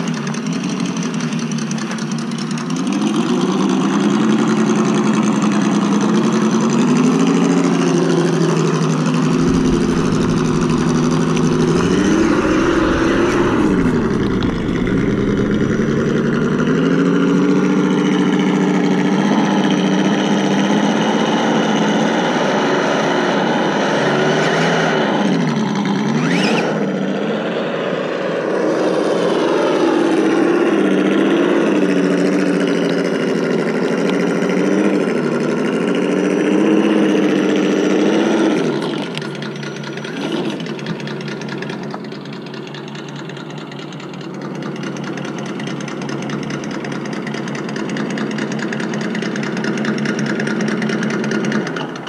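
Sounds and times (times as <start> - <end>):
simulated engine through small speaker: 0.0 - 52.0.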